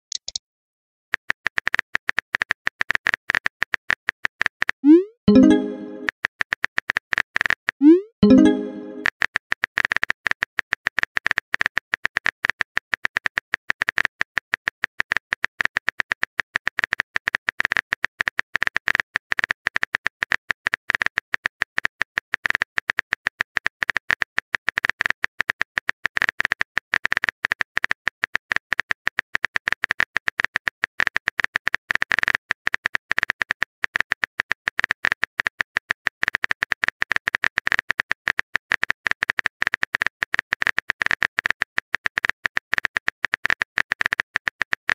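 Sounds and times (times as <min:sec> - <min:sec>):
keyboard typing clicks: 0:00.1 - 0:00.4, 0:05.3 - 0:06.1, 0:08.2 - 0:09.1.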